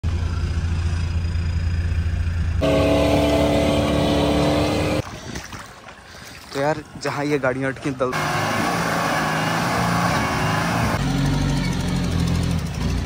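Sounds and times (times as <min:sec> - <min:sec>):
high-pitched engine tone: 0:00.0 - 0:05.0, 0:08.2 - 0:13.0
low engine rumble: 0:00.0 - 0:05.0.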